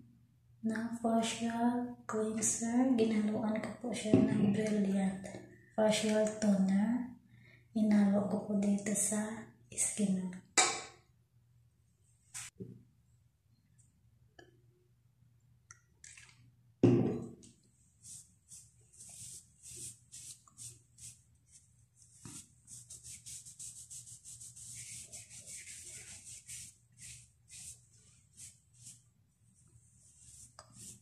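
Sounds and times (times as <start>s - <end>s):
cotton pad wiping skin: 17.9s - 29.1s, 29.9s - 31.0s.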